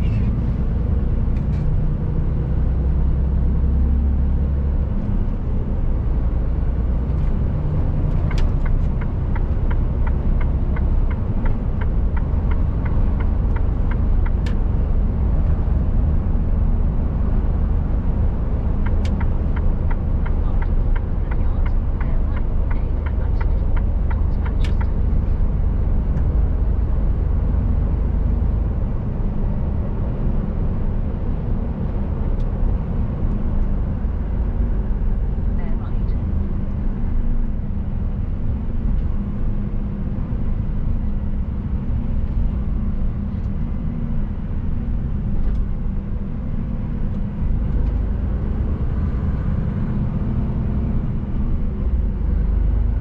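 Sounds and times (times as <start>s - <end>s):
truck engine droning: 0.0s - 53.0s
regular ticking: 18.8s - 25.2s.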